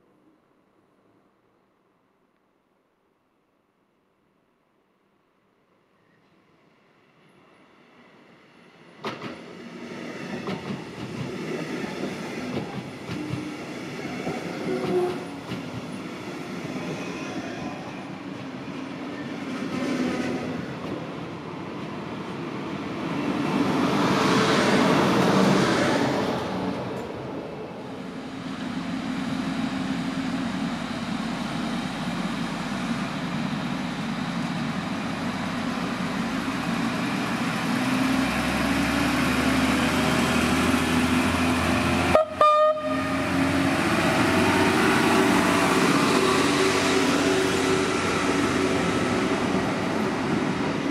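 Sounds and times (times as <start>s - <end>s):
train wheels clacking over rail joints: 10.3s - 13.6s
diesel railcar idling hum: 27.7s - 44.2s.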